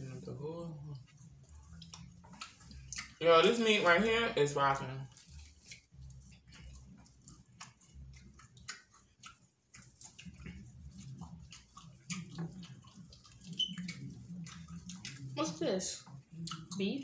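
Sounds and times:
food squishing pulled by hand: 0:00.0 - 0:17.0
wet chewing and lip smacks: 0:00.0 - 0:17.0.

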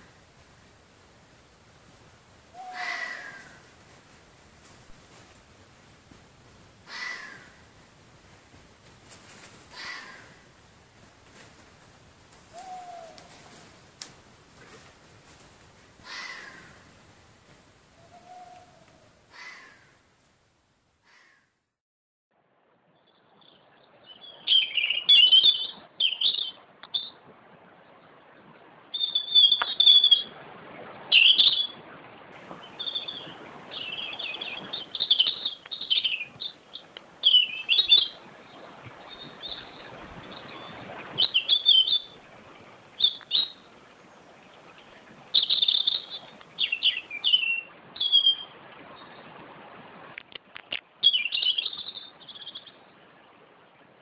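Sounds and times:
faint background hiss: 0:00.0 - 0:21.6, 0:22.5 - 0:54.0
small bird chirping: 0:29.0 - 0:30.3, 0:32.7 - 0:38.2, 0:43.0 - 0:43.6, 0:45.3 - 0:48.4, 0:51.0 - 0:52.7.

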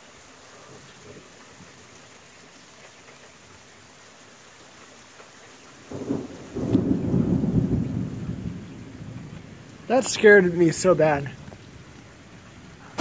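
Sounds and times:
steady rain falling: 0:00.0 - 0:13.0
thunder rumble and crack: 0:05.9 - 0:11.8.

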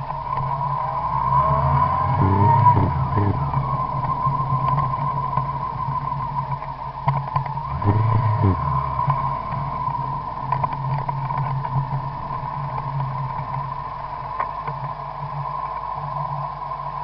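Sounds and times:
high whine: 0:00.0 - 0:17.0
vehicle engine running: 0:00.0 - 0:17.0
faint ticks: 0:04.0 - 0:17.0.

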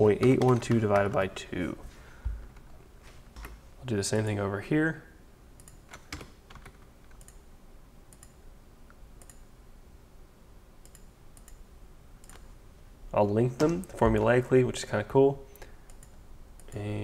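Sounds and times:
keyboard and mouse clicks: 0:00.2 - 0:01.2, 0:05.6 - 0:07.4, 0:08.1 - 0:08.4, 0:09.2 - 0:09.4, 0:10.8 - 0:11.6, 0:12.2 - 0:12.5, 0:15.6 - 0:16.8.

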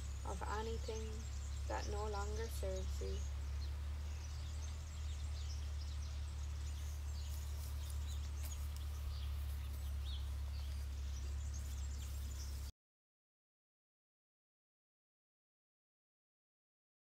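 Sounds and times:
birds chirping faintly: 0:00.0 - 0:12.7
steady low rumble: 0:00.0 - 0:12.7.

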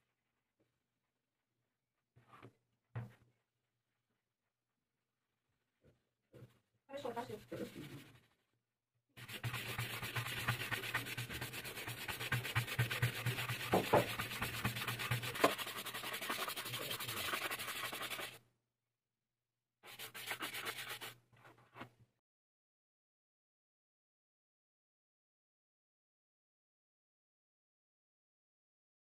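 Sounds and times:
hand brush buffing leather: 0:09.2 - 0:18.4, 0:19.9 - 0:21.2.

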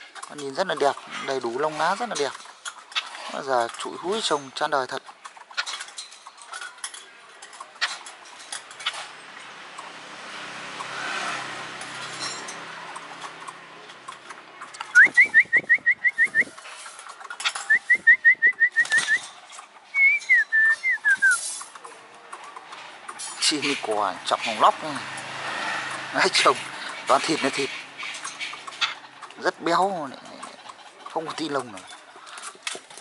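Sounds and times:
bird whistled calls: 0:14.9 - 0:16.6, 0:17.6 - 0:19.3, 0:19.9 - 0:21.5.

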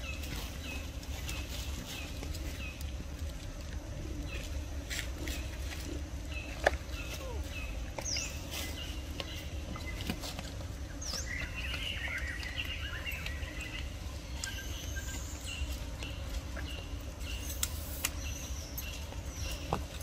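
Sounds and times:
steady low rumble: 0:00.0 - 0:20.0
bird chirps and calls: 0:10.9 - 0:19.8.

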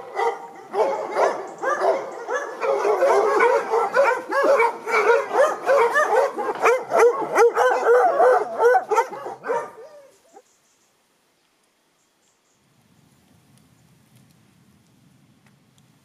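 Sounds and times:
dogs barking and yelping: 0:00.0 - 0:10.4.

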